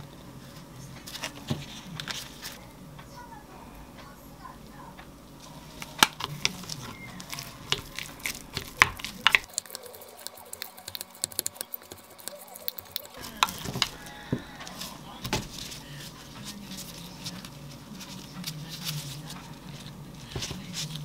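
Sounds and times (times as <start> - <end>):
wet mixing in a bowl: 5.3 - 21.0.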